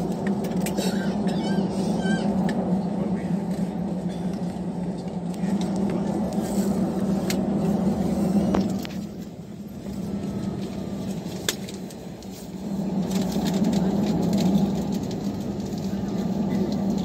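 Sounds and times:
jet engines from inside cabin: 0.0s - 17.0s.

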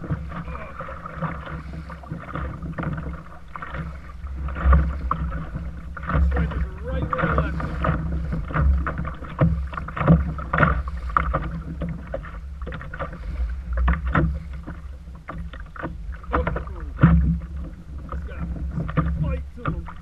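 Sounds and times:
splashes and knocks: 0.0s - 20.0s
waves slapping kayak hull: 0.0s - 20.0s
wind rumble on microphone: 0.0s - 20.0s.

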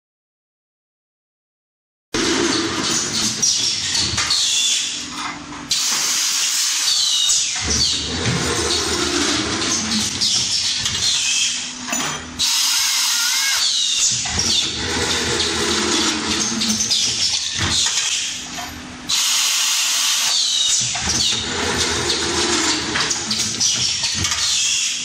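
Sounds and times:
mechanical clatter: 2.2s - 19.2s, 20.2s - 25.0s
milling cutters screeching on metal: 6.6s - 18.8s, 20.2s - 25.0s.

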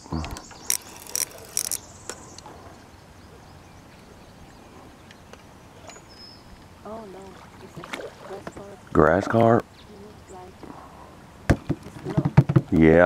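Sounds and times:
fishing reel buzzing: 0.4s - 2.3s.

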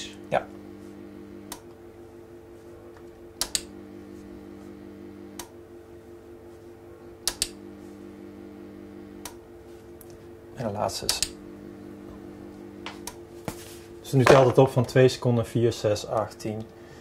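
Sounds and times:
steady electrical hum: 0.0s - 17.0s
enlarger switch clicks: 1.5s - 1.7s, 3.4s - 3.8s, 5.3s - 5.6s, 7.2s - 7.6s, 9.2s - 9.4s, 11.0s - 11.4s.

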